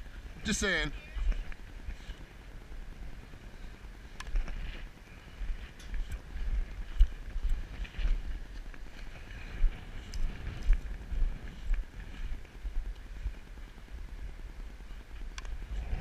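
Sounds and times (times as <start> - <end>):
wind buffeting microphone: 0.0 - 16.0
faint ticks: 15.1 - 15.6.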